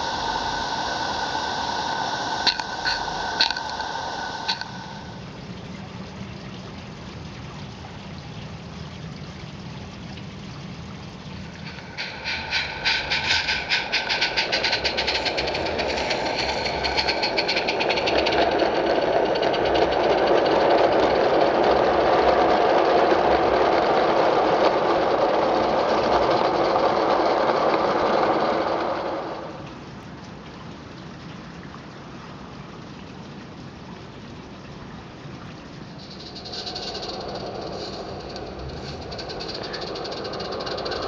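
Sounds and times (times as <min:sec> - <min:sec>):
steam locomotive exhaust chuffs: 0:00.0 - 0:05.4, 0:11.6 - 0:29.7, 0:35.9 - 0:41.0
train rushing past: 0:00.0 - 0:05.4, 0:11.6 - 0:29.7, 0:35.9 - 0:41.0
low steam hiss: 0:00.0 - 0:41.0.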